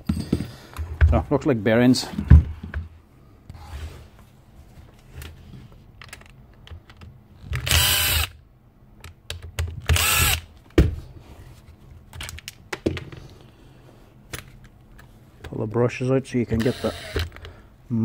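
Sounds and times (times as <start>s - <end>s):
plastic parts clicking and knocking: 6.0s - 7.7s, 9.0s - 10.9s, 12.1s - 13.3s, 16.6s - 17.6s
power screwdriver whirring: 7.6s - 8.4s, 9.9s - 10.4s, 16.6s - 17.4s.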